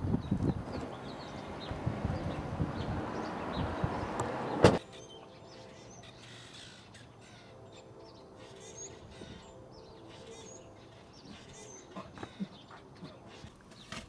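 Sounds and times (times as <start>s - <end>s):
birds chirping faintly: 0.0s - 14.0s
car door shutting: 4.2s - 4.8s.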